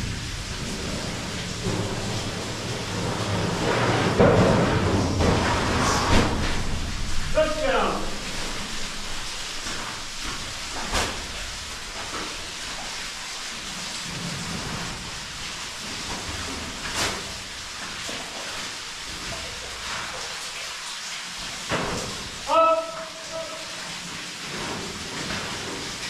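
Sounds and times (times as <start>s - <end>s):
steady rushing hiss: 0.0s - 21.5s.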